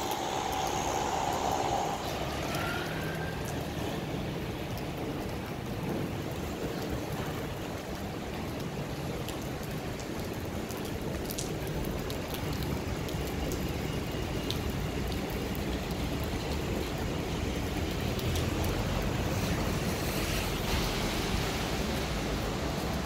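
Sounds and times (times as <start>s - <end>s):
low rumble: 0.0s - 4.3s
rain falling on paving: 0.0s - 23.0s
raindrop ticks: 0.0s - 23.0s.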